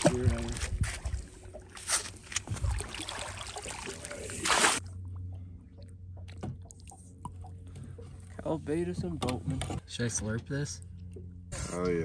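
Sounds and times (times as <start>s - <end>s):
low steady hum: 0.0s - 12.0s
fish splashing in water: 1.2s - 4.8s.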